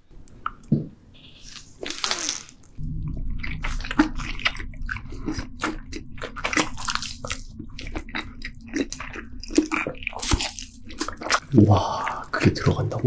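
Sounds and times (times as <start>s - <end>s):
person chewing wetly: 1.3s - 12.7s
low rumble: 2.7s - 12.3s.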